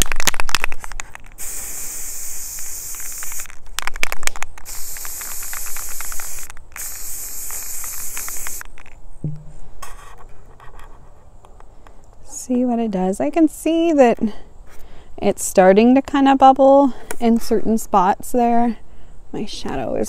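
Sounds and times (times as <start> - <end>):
spray can hissing: 0.8 - 3.6, 4.6 - 8.8
spray can clicks: 1.4 - 8.9.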